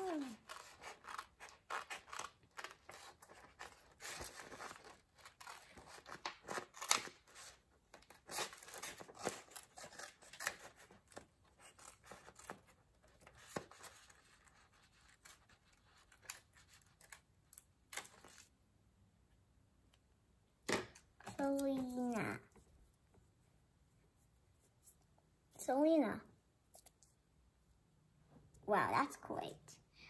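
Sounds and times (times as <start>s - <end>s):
scissors snipping paper: 0.0s - 18.4s
paper rustling: 0.0s - 18.5s.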